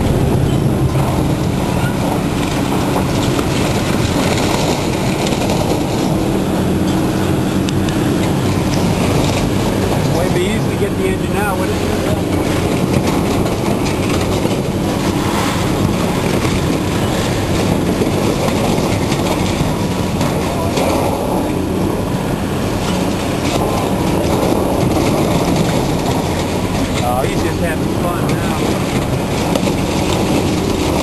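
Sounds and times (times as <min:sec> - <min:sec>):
demolition machine engine drone: 0:00.0 - 0:31.0
metal squeals: 0:01.6 - 0:02.2.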